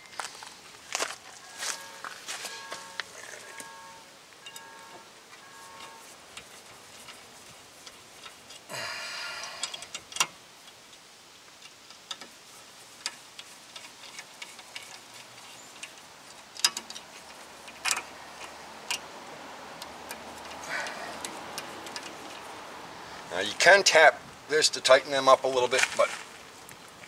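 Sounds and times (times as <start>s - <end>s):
metal rattling scrape: 12.2s - 18.5s.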